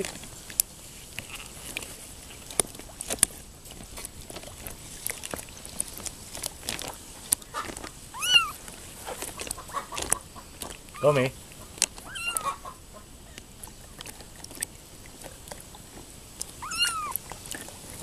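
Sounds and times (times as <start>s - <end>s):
kitten mewing: 8.1s - 8.6s, 12.0s - 12.6s, 16.5s - 17.3s.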